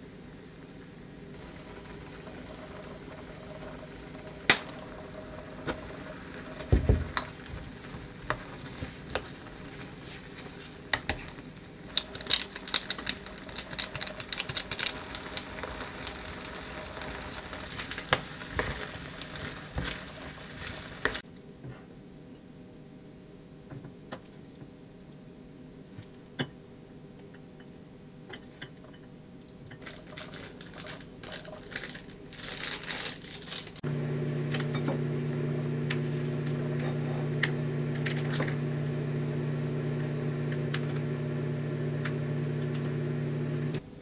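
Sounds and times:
risotto simmering in a pan: 1.3s - 21.8s.

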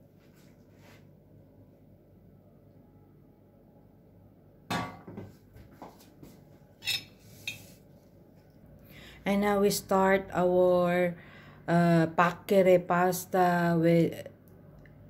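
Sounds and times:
metal pan clanking on table: 4.7s - 5.2s.

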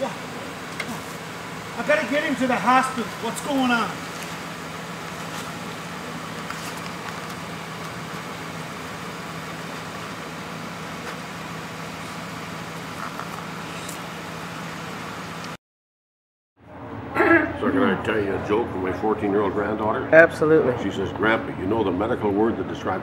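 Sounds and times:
constant low hum: 0.0s - 15.6s.

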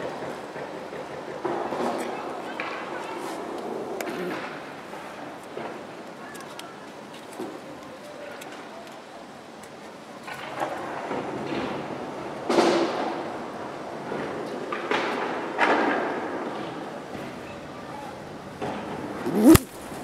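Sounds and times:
pigeon wing slaps: 19.3s - 20.0s.

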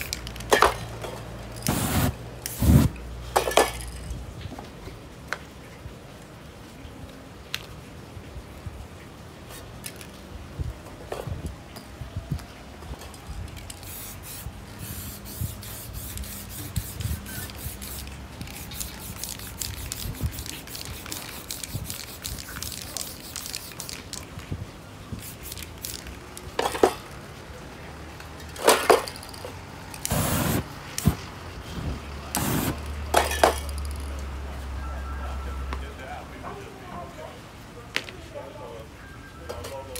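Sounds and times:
spray paint can hissing: 1.6s - 3.0s, 13.6s - 24.2s, 25.2s - 26.1s, 29.9s - 31.3s, 32.3s - 32.9s.

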